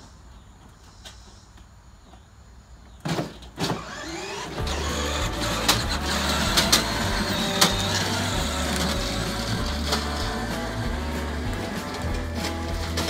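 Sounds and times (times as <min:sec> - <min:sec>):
electric motors running: 0:03.8 - 0:13.0
metal trailer rattling: 0:03.8 - 0:13.0.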